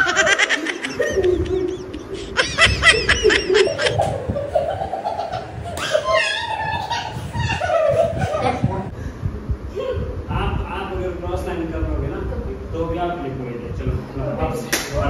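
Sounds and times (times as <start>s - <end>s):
high-pitched laughter: 0.0s - 8.9s.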